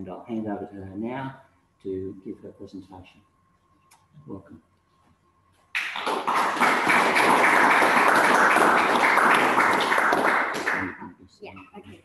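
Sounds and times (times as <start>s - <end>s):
audience applauding: 5.8s - 10.9s.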